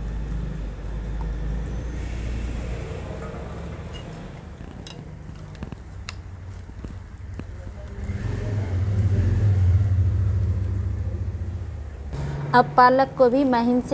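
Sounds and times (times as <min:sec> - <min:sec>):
low rumble: 0:07.9 - 0:12.8.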